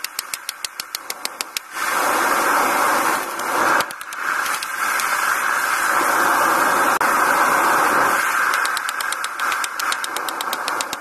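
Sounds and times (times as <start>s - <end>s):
light metallic clicks: 8.5s - 11.0s.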